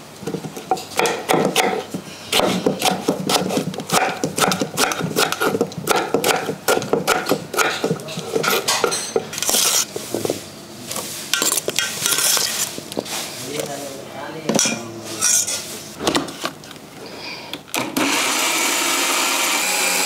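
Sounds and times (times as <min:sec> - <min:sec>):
knife chopping on wooden board: 0:00.7 - 0:09.0
rustling scrape: 0:09.4 - 0:14.0.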